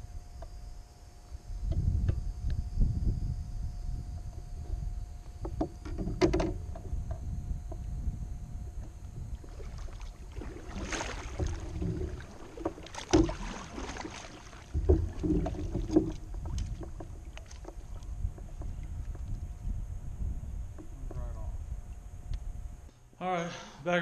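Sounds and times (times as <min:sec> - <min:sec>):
wind on microphone: 0:01.2 - 0:22.9
hollow knocks against hull: 0:04.1 - 0:21.5
water swishing and splashing: 0:04.2 - 0:22.3.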